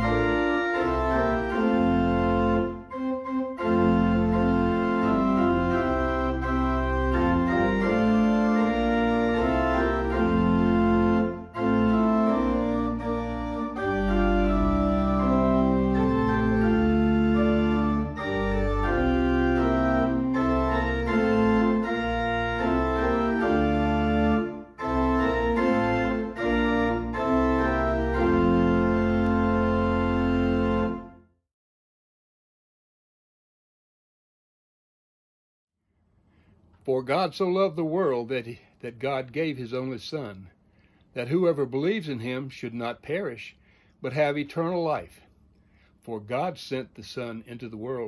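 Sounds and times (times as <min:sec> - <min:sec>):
organ playing sustained chords: 0:00.0 - 0:31.2.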